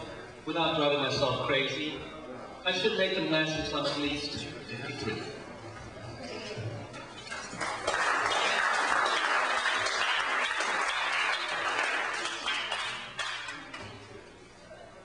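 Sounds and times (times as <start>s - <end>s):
audience applauding: 7.4s - 13.7s.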